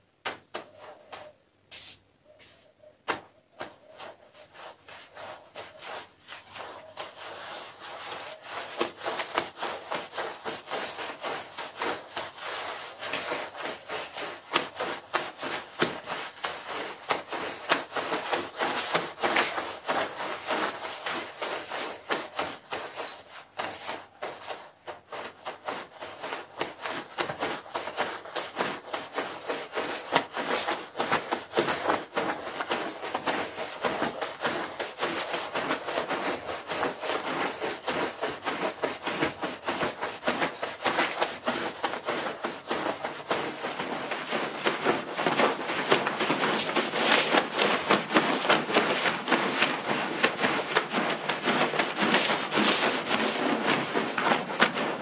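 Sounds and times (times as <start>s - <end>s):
brush scrubbing wet carpet: 0.0s - 55.0s.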